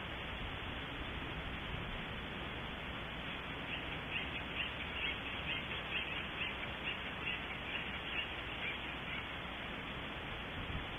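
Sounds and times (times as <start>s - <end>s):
steady hiss: 0.0s - 10.9s
woodpecker calling: 3.6s - 9.4s.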